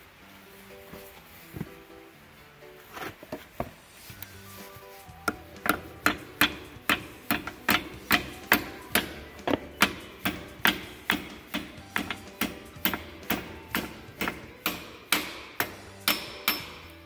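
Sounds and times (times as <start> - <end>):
hammer tapping metal pin: 5.3 - 17.0.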